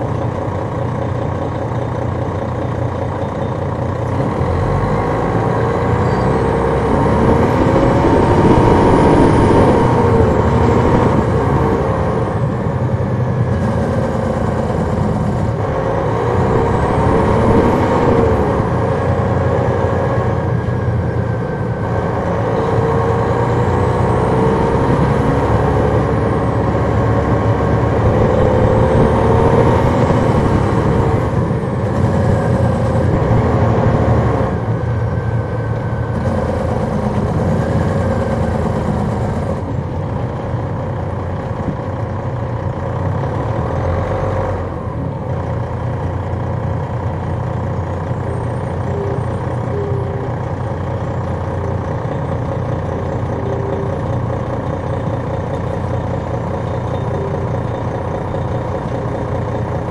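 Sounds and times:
diesel bus engine accelerating: 0:00.0 - 0:59.9.

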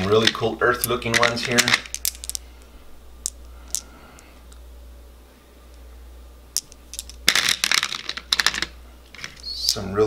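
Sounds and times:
glass marbles clicking: 0:00.0 - 0:02.4.

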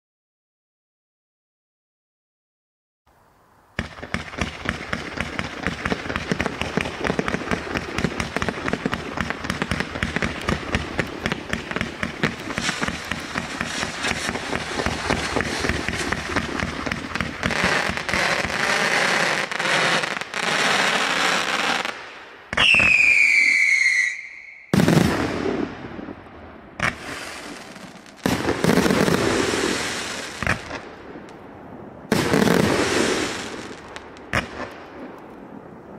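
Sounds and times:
fireworks launch pops and bursts: 0:03.8 - 0:31.5, 0:32.1 - 0:35.5
loud volleys of firework bursts: 0:03.8 - 0:35.8
falling whistle: 0:22.6 - 0:24.8.

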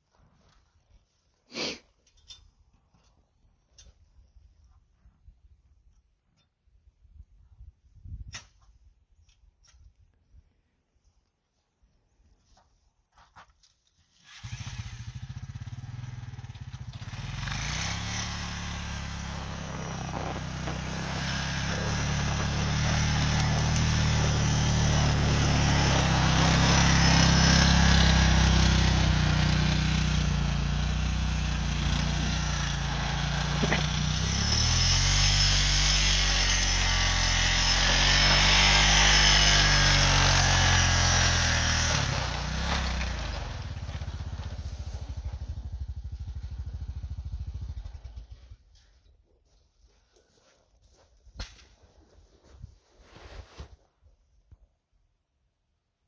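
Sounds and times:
atv engine running under load: 0:14.3 - 0:48.6.

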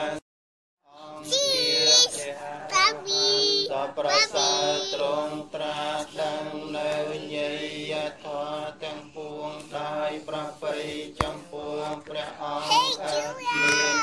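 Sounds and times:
group of voices chanting: 0:00.9 - 0:14.0
small child's high voice: 0:12.6 - 0:14.0.

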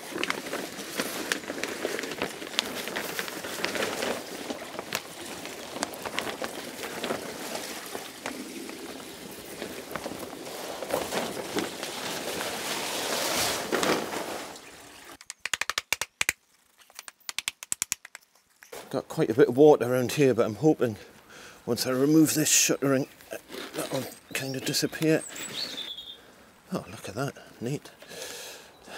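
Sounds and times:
wet tarpaulin rustling and crackling: 0:00.0 - 0:17.2, 0:18.4 - 0:26.9
water running off tarpaulin: 0:00.0 - 0:17.7.

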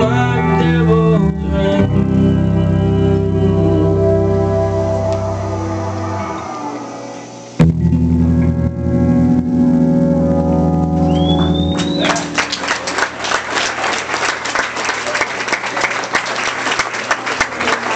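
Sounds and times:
rock band chord ringing: 0:01.8 - 0:13.6
crowd whistling: 0:11.0 - 0:16.9
audience applause and cheering: 0:11.0 - 0:17.9.

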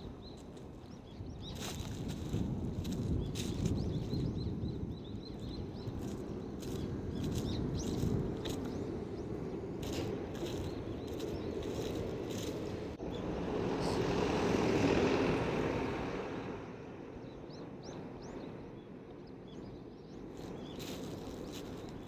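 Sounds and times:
walking footsteps: 0:01.6 - 0:04.2, 0:05.4 - 0:08.8, 0:09.8 - 0:12.7, 0:20.4 - 0:22.0
vehicle passing by: 0:12.4 - 0:17.2.

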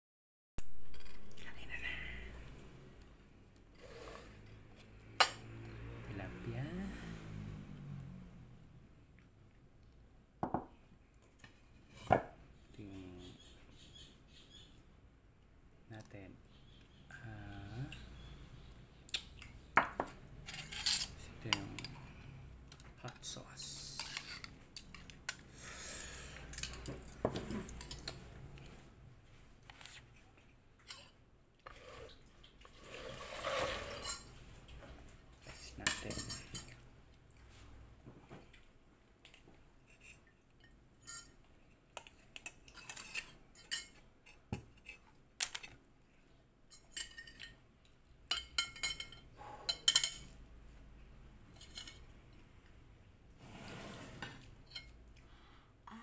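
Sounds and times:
cutlery clinking on plate: 0:48.3 - 0:50.3.

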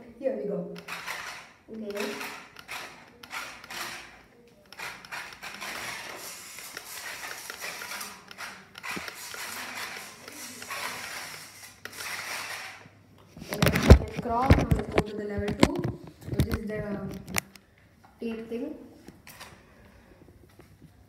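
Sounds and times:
toy car electric motor and gears: 0:00.8 - 0:12.8.

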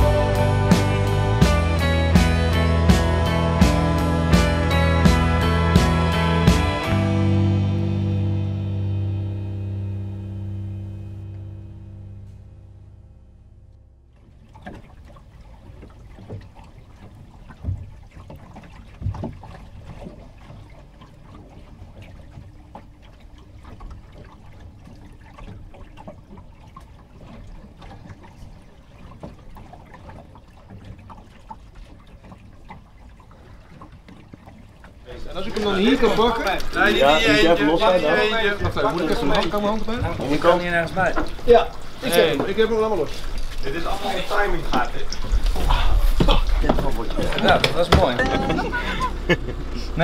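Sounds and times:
music: 0:00.0 - 0:13.4
water lapping against boat hull: 0:13.8 - 0:50.0.

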